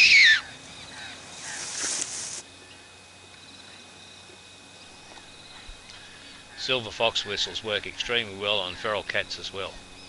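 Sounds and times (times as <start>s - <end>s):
squealing predator call whistle: 0.0s - 0.5s
soft hiss: 0.6s - 3.8s.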